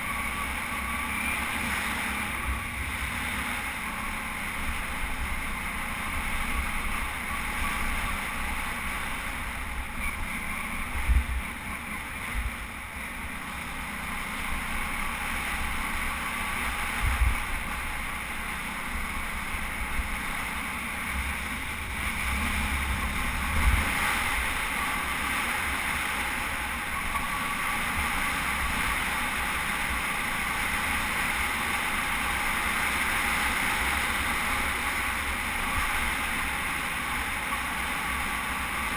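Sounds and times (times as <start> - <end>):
motorcycle engine cruising: 0.0 - 38.9
wind rush: 21.6 - 24.8.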